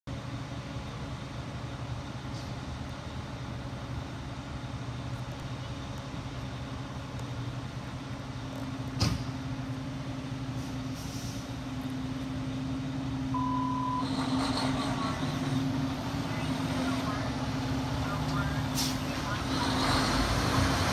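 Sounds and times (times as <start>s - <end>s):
diesel engine running: 0.1s - 20.9s
short beep: 13.4s - 14.1s.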